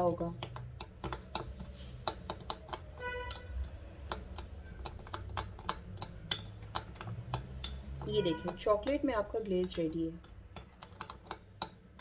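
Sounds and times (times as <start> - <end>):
metal spoon scraping ceramic bowl: 1.6 - 9.3.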